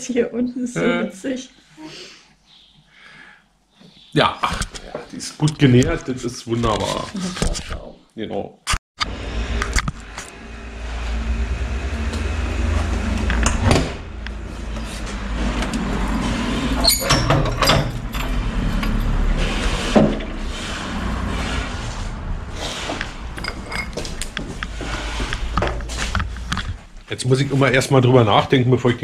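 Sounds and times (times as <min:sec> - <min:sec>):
street traffic rumble: 0:09.0 - 0:28.0.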